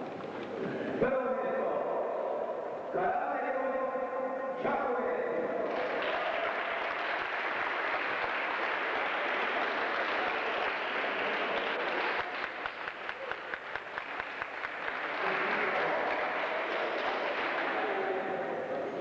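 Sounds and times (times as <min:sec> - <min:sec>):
crowd applauding: 0:05.6 - 0:18.4.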